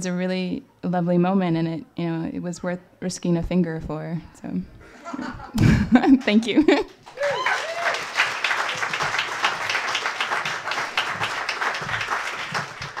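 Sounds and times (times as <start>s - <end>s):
audience applauding: 6.2s - 13.0s
audience cheering: 7.1s - 13.0s.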